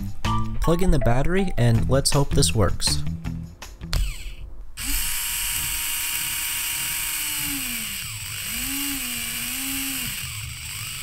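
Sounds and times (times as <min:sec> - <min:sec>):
servo motor whirring: 0:04.0 - 0:11.0.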